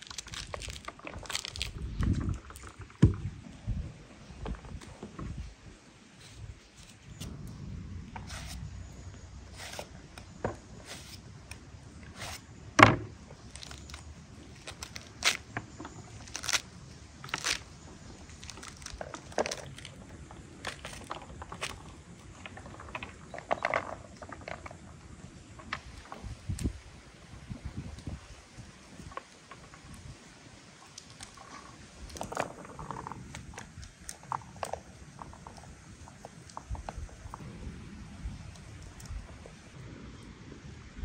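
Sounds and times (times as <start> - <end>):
knife cutting pomegranate rind: 8.2 - 8.7, 9.5 - 11.3, 12.1 - 12.5.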